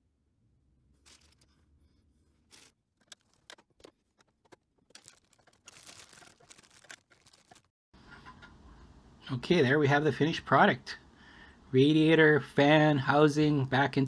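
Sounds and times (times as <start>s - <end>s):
plastic bag crinkling: 1.0s - 1.6s, 2.3s - 7.7s.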